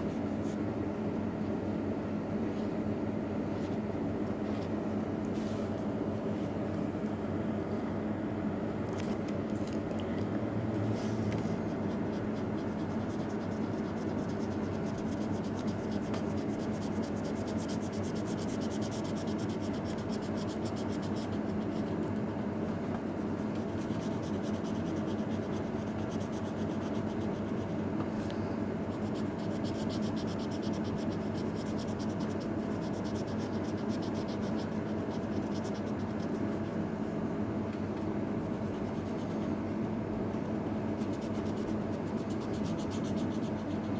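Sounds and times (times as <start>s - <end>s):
steady low hum: 0.0s - 43.9s
marker scratching on paper: 11.4s - 27.8s, 28.9s - 36.8s, 38.4s - 39.6s, 41.0s - 43.9s.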